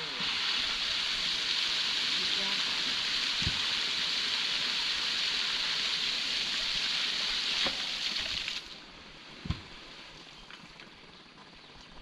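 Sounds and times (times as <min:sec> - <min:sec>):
water gushing and splashing: 0:00.0 - 0:08.8.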